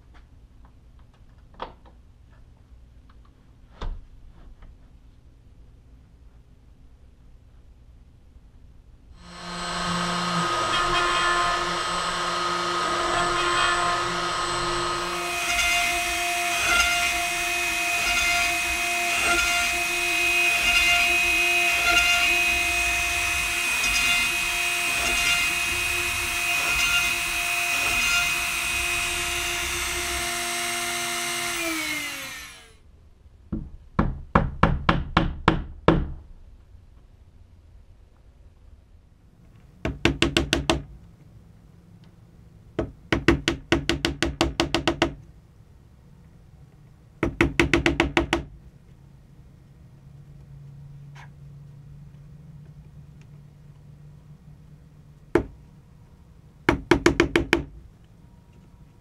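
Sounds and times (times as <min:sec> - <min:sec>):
router spindle motor whining: 0:09.2 - 0:32.8.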